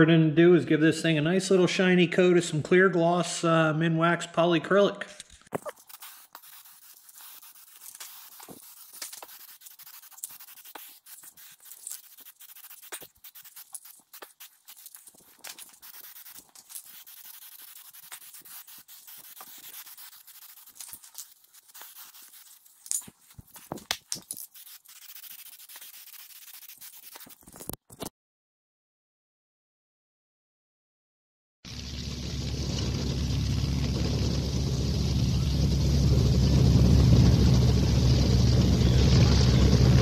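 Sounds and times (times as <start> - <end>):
aerosol can spraying: 5.6 - 27.5.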